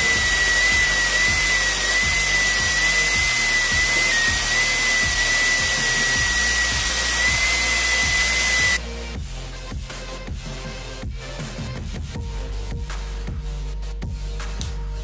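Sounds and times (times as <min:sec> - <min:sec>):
angle grinder grinding steel: 0:00.0 - 0:08.8.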